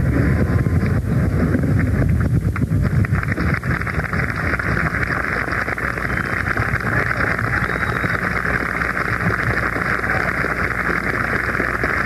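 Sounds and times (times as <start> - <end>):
wind noise on microphone: 0.0 - 12.0
audience applauding: 2.6 - 12.0.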